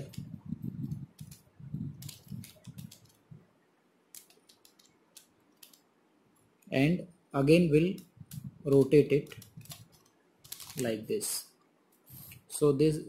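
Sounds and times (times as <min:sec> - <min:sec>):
plastic puzzle clicking and rattling: 0:01.1 - 0:03.2, 0:04.1 - 0:05.8, 0:08.7 - 0:10.9.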